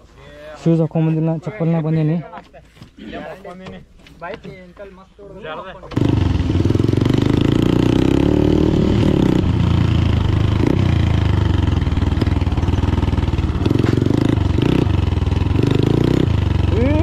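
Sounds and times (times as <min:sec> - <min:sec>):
motorcycle engine revving: 0:05.9 - 0:17.0.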